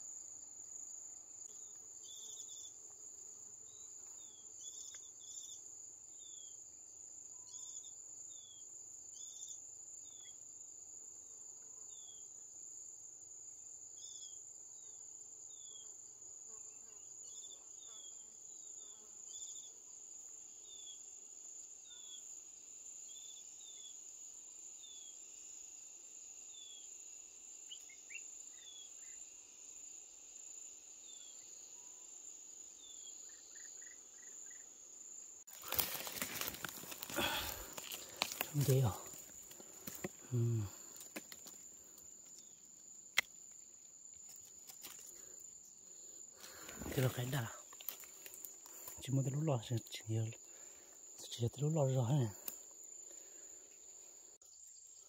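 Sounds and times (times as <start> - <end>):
insects droning: 0.0 - 55.0.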